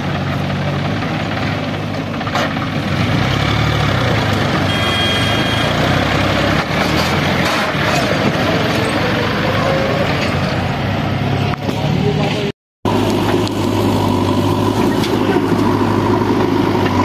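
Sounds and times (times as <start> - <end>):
tractor diesel engine running: 0.0 - 17.0
brief high tone: 4.7 - 5.9.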